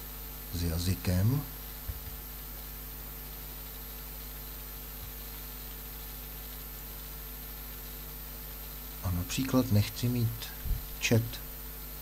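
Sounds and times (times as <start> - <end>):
background hiss: 0.0 - 2.8
electrical mains hum: 0.0 - 12.0
faint high whine: 0.0 - 12.0.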